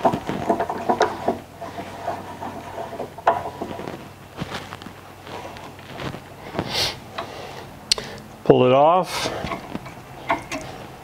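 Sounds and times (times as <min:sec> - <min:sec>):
metal vise handle rattling: 0:09.4 - 0:10.8.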